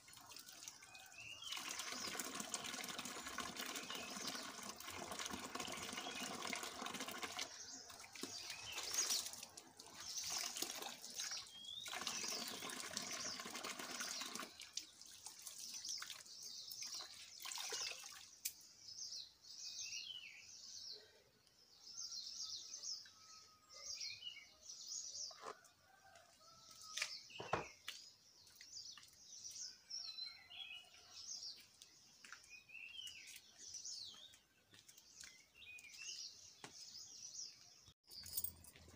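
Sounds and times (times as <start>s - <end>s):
tap water running into basin: 0.0s - 18.6s
birds chirping: 0.4s - 38.9s.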